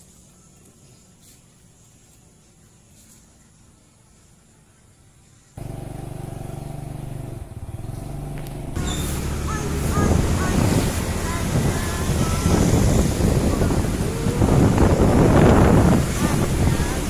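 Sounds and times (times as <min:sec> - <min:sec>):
motorcycle engine running: 0:05.6 - 0:17.0
wind rushing over microphone: 0:08.6 - 0:17.0
short high chirps: 0:08.8 - 0:09.3.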